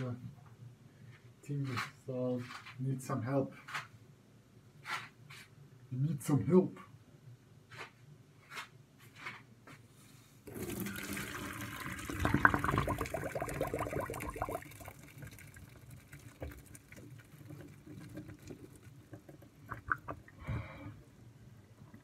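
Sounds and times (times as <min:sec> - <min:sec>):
water pouring into sink: 0:10.5 - 0:20.4.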